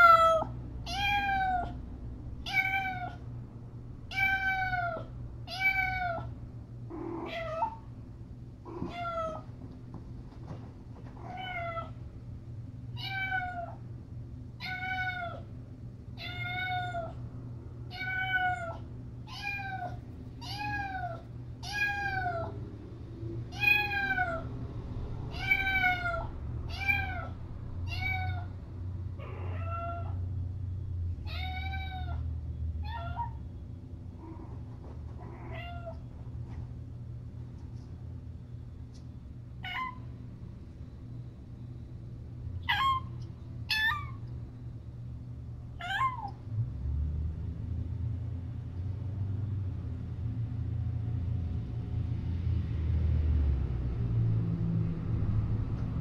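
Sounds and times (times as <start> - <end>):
cat meowing: 0.0 - 1.8, 2.4 - 3.2, 4.1 - 7.8, 8.7 - 9.5, 11.2 - 12.0, 13.0 - 13.8, 14.6 - 15.5, 16.2 - 17.2, 17.9 - 22.6, 23.5 - 24.5, 25.3 - 28.5, 29.2 - 30.2, 31.2 - 33.4, 35.2 - 36.1, 39.6 - 40.1, 42.6 - 44.3, 45.8 - 46.4.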